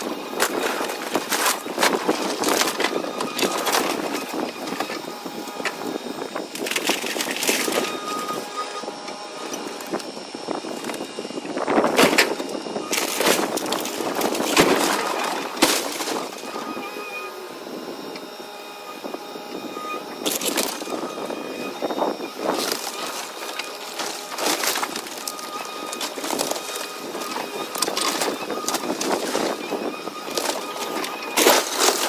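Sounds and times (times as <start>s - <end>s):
timber cracking and splintering: 0.0s - 8.6s, 11.7s - 16.8s, 20.2s - 32.0s
excavator engine running: 0.0s - 32.0s
falling debris crashing: 12.0s - 16.5s, 22.4s - 29.7s, 30.3s - 32.0s.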